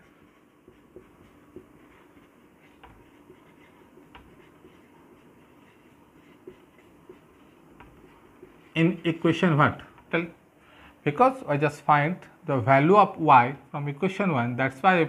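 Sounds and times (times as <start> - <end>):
marker scratching on whiteboard: 0.0 - 10.2.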